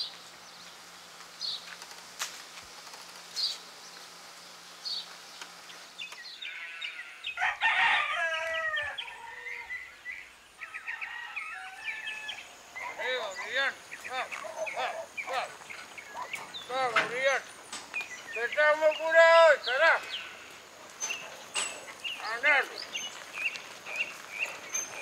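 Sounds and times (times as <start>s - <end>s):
small birds chirping: 0.0s - 7.6s, 8.4s - 25.0s
rooster crowing: 6.4s - 13.0s.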